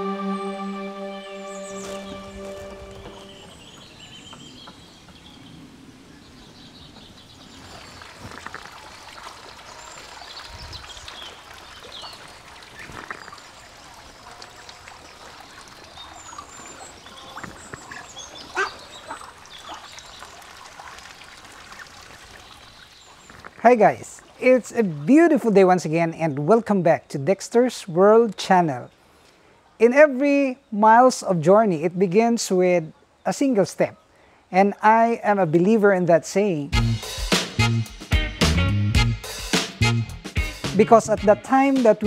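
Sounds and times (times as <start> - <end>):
ducks calling on water: 7.6 - 23.6.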